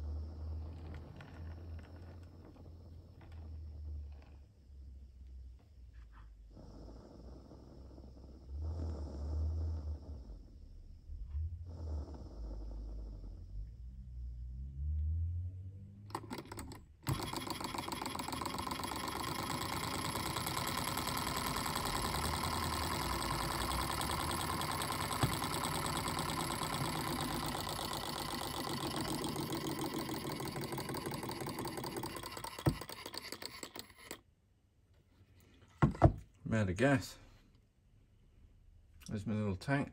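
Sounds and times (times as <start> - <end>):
small engine mechanical clatter: 0.0 - 3.7, 16.0 - 34.2.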